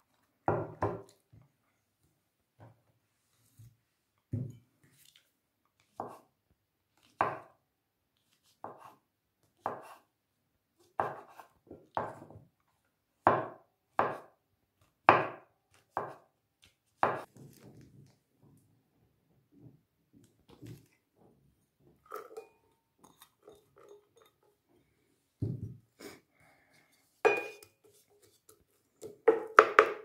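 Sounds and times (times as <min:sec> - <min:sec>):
knife chopping on wooden board: 0:09.6 - 0:10.0, 0:10.9 - 0:11.4, 0:13.3 - 0:14.3, 0:15.1 - 0:16.2, 0:17.0 - 0:17.3.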